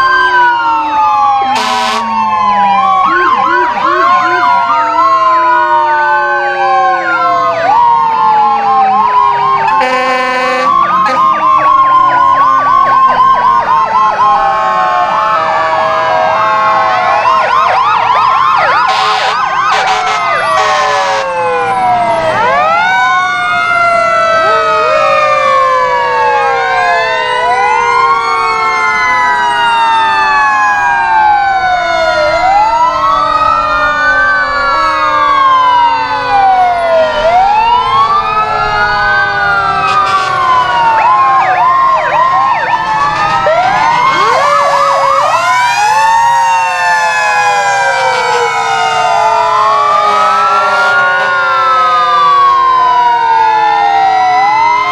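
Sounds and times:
fire truck sirens wailing: 0:00.0 - 0:54.9
siren blaring blasts: 0:00.0 - 0:54.9.

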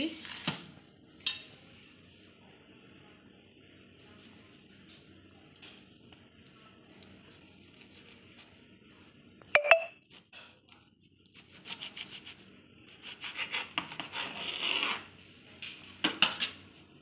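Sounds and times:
knife sawing through bread: 0:11.4 - 0:15.1.

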